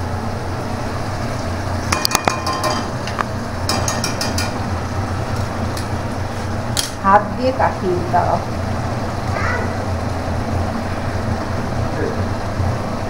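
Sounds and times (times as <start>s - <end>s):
steady low hum: 0.0s - 13.0s
metal spoon clinking against pan: 1.9s - 2.9s, 3.7s - 4.6s.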